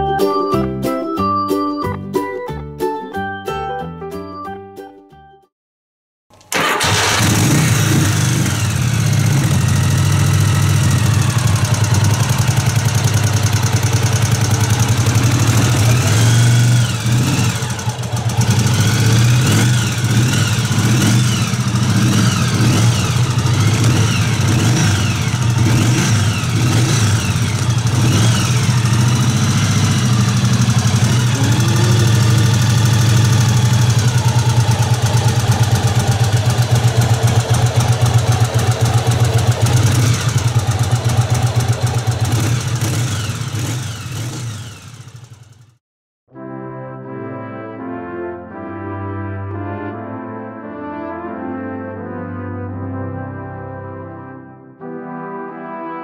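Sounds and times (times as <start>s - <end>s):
motorcycle engine idling: 6.6s - 45.8s.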